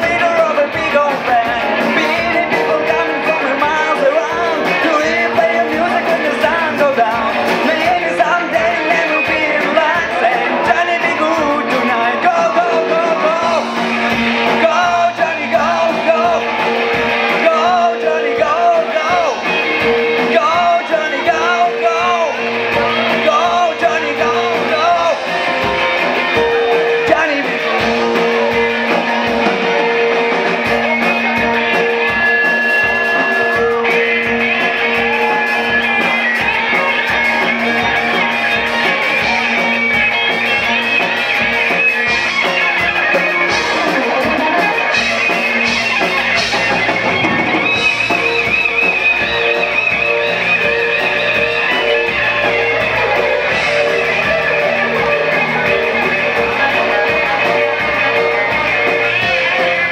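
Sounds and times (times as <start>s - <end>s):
lead vocal singing: 0.0s - 40.4s
drum kit: 0.0s - 59.9s
electric guitar: 0.0s - 59.9s
keyboard: 0.0s - 59.9s.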